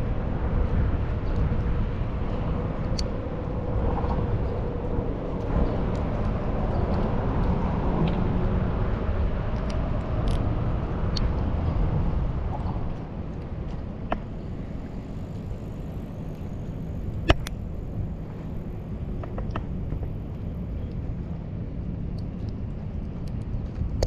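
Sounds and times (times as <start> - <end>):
low outdoor rumble: 0.0 - 24.0
faint light ticks: 22.1 - 24.0.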